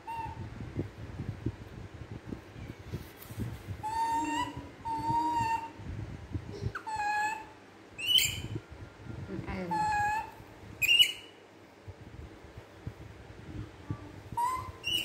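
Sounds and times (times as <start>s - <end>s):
baby monkey squeal: 3.8s - 5.7s, 6.8s - 8.5s, 9.7s - 11.3s, 14.4s - 15.0s
baby monkey cooing: 14.4s - 15.0s.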